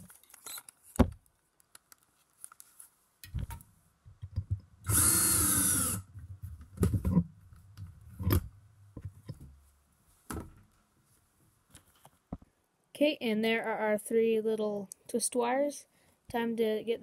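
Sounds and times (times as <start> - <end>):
cordless drill motor whirring: 4.8 - 6.1.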